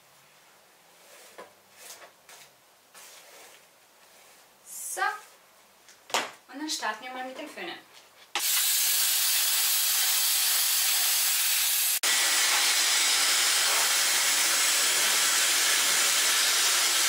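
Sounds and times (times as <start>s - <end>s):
hair dryer blowing: 8.4s - 17.0s.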